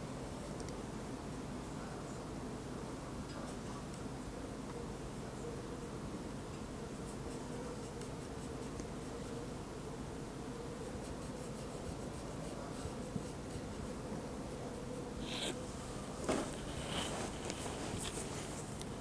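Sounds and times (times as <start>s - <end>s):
paintbrush scratching: 10.8s - 13.9s, 15.2s - 15.6s.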